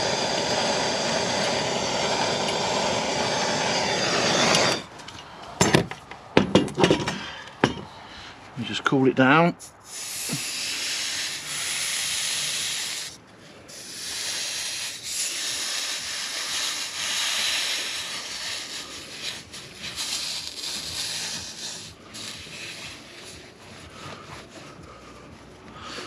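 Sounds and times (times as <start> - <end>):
steam hissing from hot pipe: 0.0 - 4.9, 9.7 - 25.1.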